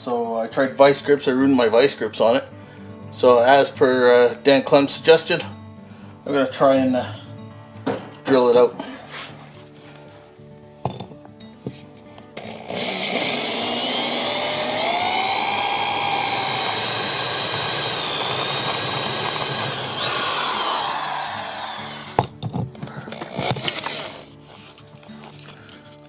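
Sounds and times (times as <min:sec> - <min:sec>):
electric drill grinding into bolt: 0:12.4 - 0:22.4, 0:23.1 - 0:24.3.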